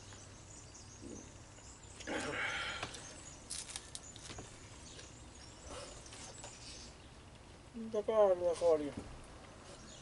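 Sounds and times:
man breathing while eating: 2.1s - 3.1s.

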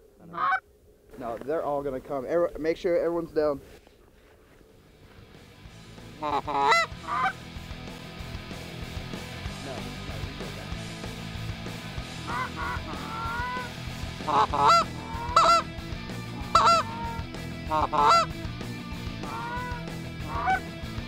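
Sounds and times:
goose honking and clucking: 0.2s - 0.6s, 6.1s - 7.4s, 12.2s - 15.7s, 16.3s - 18.4s, 19.2s - 20.7s.

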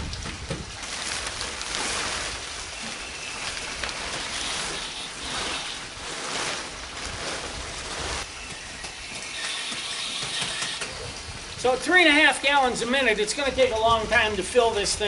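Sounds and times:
plastic liner rustling and crinkling: 0.0s - 10.8s.

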